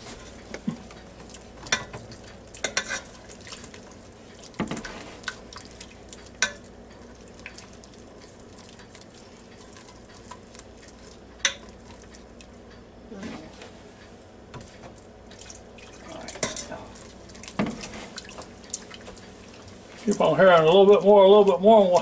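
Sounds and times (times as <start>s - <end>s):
whisk wires knocking pot: 0.0s - 5.5s, 6.1s - 12.9s
whisk scraping in pot: 2.6s - 5.4s.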